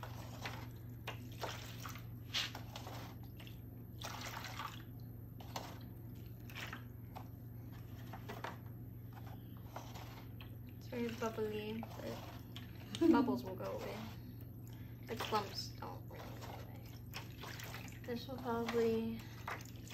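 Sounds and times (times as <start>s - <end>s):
liquid sloshing in a foil tray: 0.0s - 19.9s
steady low hum: 0.0s - 19.9s
wet squelches and drips: 0.4s - 8.3s, 10.3s - 13.0s, 13.6s - 19.9s.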